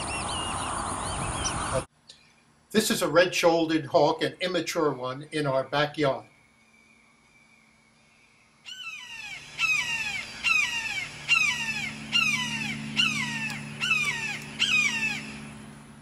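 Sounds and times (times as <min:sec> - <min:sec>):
hawk screaming: 0:08.7 - 0:15.6.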